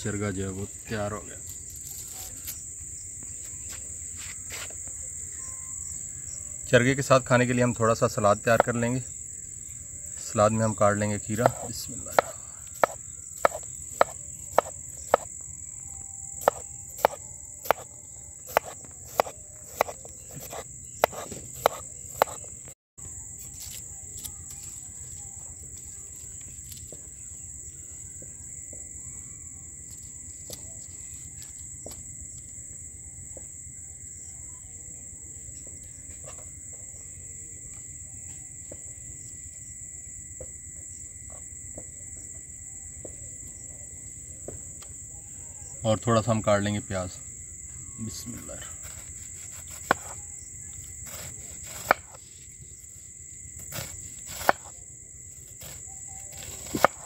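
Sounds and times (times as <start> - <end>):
crickets chirring: 0.0 - 57.0
knife chopping on cutting board: 11.4 - 15.3, 16.4 - 17.9, 18.5 - 22.4, 48.9 - 50.2, 51.1 - 52.2, 53.7 - 54.7, 56.4 - 57.0.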